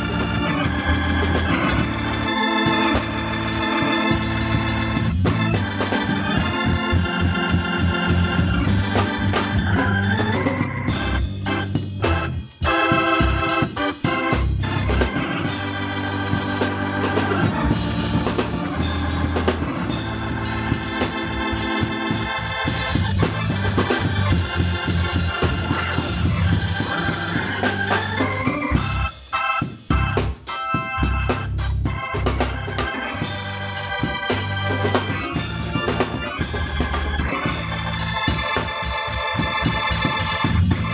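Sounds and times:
band playing short stabs: 0.0s - 40.9s
drum kit: 0.0s - 40.9s
gospel organ groove: 0.0s - 40.9s.

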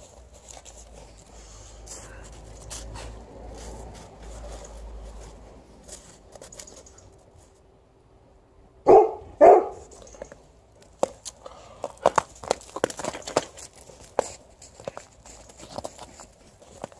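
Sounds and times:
faint crunching in snow: 0.0s - 7.6s, 11.2s - 16.9s
dog barking: 8.8s - 9.9s.

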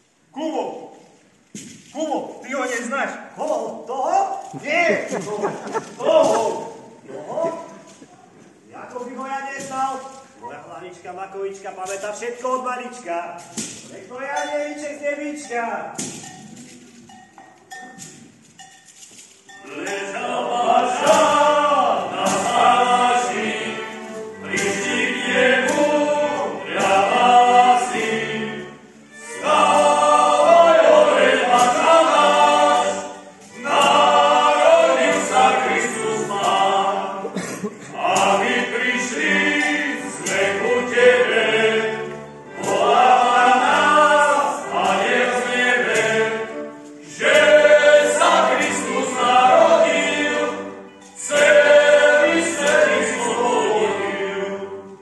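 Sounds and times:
group singing a carol: 5.1s - 8.0s, 19.5s - 55.0s.

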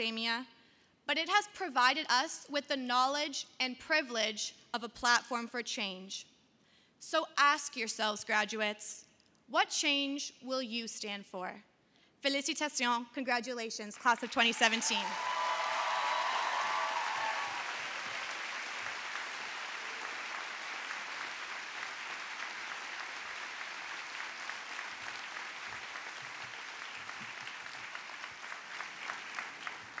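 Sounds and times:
audience applauding: 14.2s - 30.0s.

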